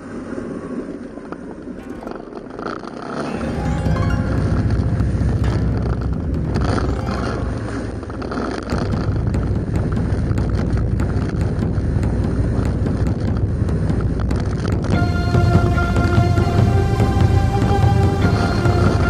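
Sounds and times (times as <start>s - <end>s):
scooter engine and road rumble: 7.8s - 16.6s.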